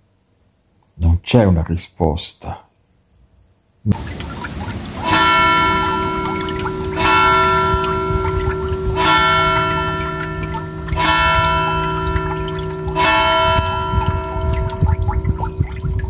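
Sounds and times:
trickling water: 0:03.9 - 0:16.0
deep bell tone ringing: 0:04.9 - 0:16.0
steady low drone: 0:05.3 - 0:16.0.

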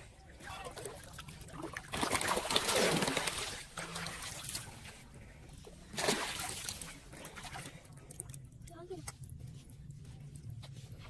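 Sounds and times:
water splashing in a drain: 0:00.7 - 0:04.7, 0:05.9 - 0:08.4.

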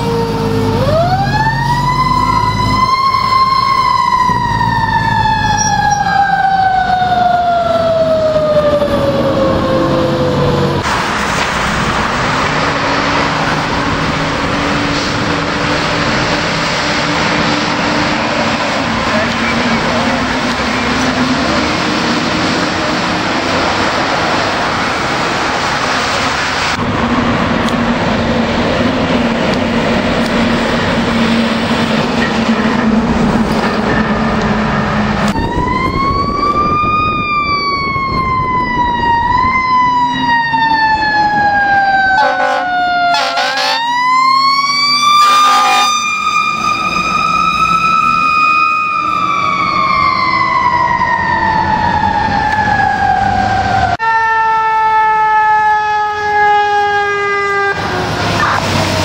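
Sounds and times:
fire engine siren: 0:00.0 - 0:59.0
road traffic hum: 0:00.0 - 0:59.0
air horn blasts: 0:42.2 - 0:44.0, 0:45.2 - 0:46.1.

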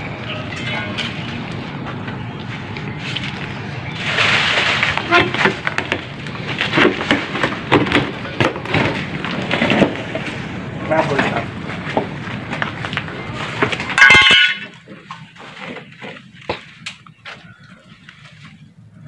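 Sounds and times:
rustle: 0:03.0 - 0:07.4.

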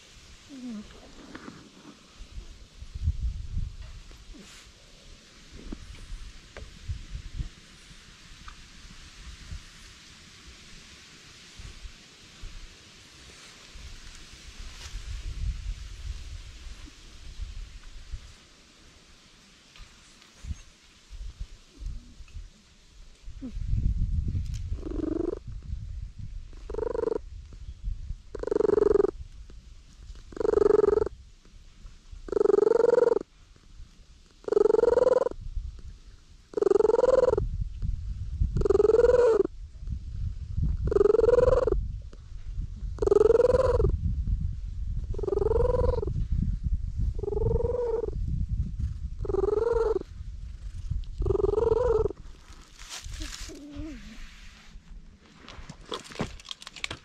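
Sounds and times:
cat purring loudly: 0:00.5 - 0:01.9, 0:24.7 - 0:25.5, 0:26.5 - 0:27.2, 0:28.3 - 0:29.2, 0:30.2 - 0:31.1, 0:32.3 - 0:33.2, 0:34.3 - 0:35.4, 0:36.5 - 0:37.4, 0:38.5 - 0:39.5, 0:40.8 - 0:41.8, 0:42.9 - 0:44.0, 0:45.0 - 0:46.2, 0:47.1 - 0:52.2.

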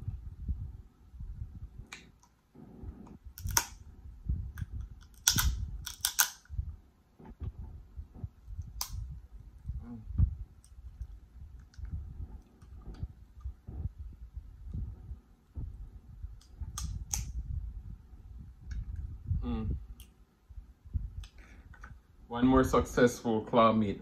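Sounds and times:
lobster shell cracking: 0:03.4 - 0:03.8, 0:05.0 - 0:06.5.

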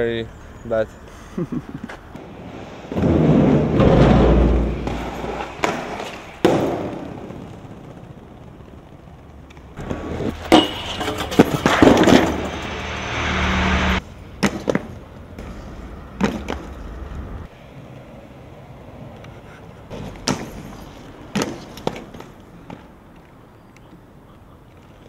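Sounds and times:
inline skates rolling on concrete: 0:01.7 - 0:12.7, 0:14.0 - 0:25.0
skates clacking on ledges: 0:02.9 - 0:07.1, 0:09.5 - 0:12.6, 0:14.4 - 0:15.6, 0:16.2 - 0:16.8, 0:19.9 - 0:24.0.

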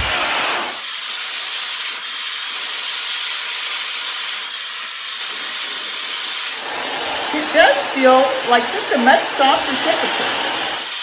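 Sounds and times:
hair dryer blowing: 0:00.0 - 0:01.7, 0:02.8 - 0:11.0
hair being brushed: 0:06.6 - 0:10.8.

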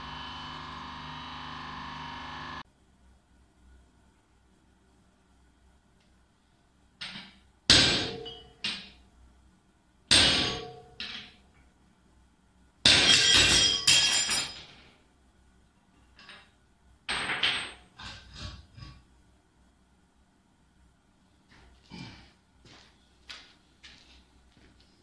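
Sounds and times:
hammer striking metal plates: 0:10.1 - 0:11.3, 0:12.8 - 0:14.7.

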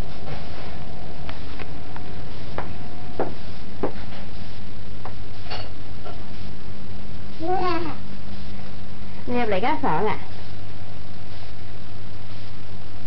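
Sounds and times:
low hum: 0:00.0 - 0:13.0.

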